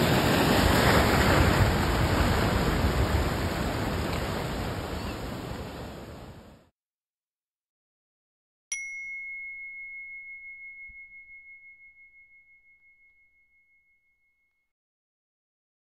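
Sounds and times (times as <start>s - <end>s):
meditation bell ringing: 8.7s - 14.7s.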